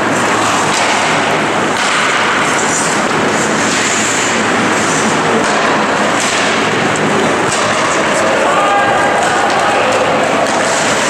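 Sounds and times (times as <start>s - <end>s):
rushing noise of hockey play: 0.0s - 11.0s
skates scraping ice: 1.8s - 6.6s, 7.3s - 11.0s.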